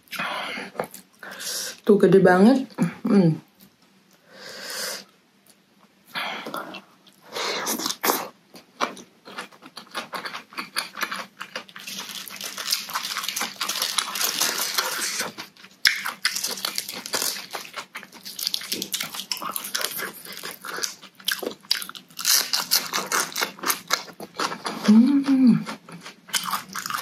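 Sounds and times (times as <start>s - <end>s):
chewing and crunching salad: 6.7s - 27.0s.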